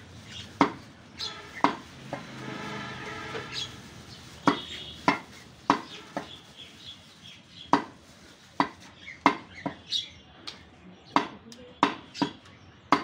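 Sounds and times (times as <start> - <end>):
knife chopping meat on wood: 0.6 - 0.8, 4.4 - 6.3, 7.7 - 8.0, 8.6 - 9.8, 11.1 - 13.0.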